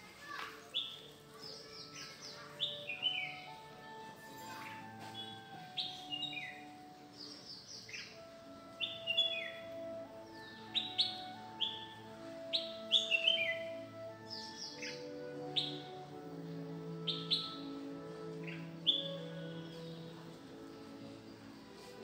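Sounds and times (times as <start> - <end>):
soft background music: 0.0 - 22.0
bird chirps: 0.7 - 3.6, 4.3 - 15.8.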